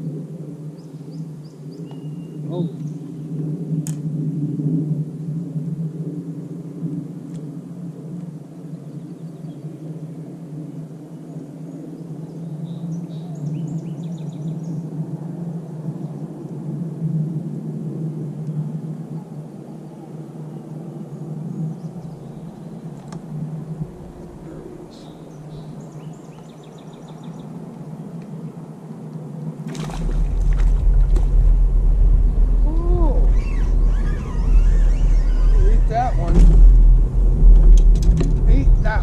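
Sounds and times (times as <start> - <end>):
faint bird chirps: 0.8 - 3.2, 32.6 - 36.2
boat motor humming: 29.7 - 39.0.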